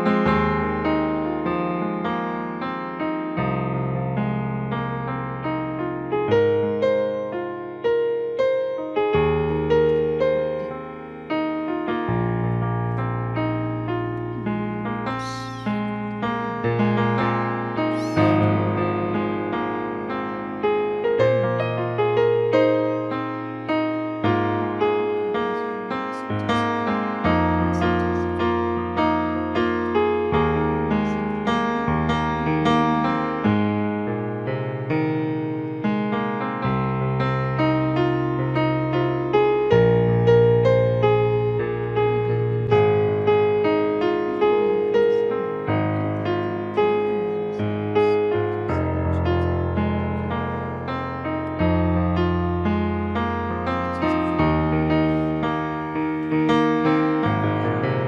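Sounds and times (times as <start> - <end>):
solo piano chords: 0.0 - 58.0.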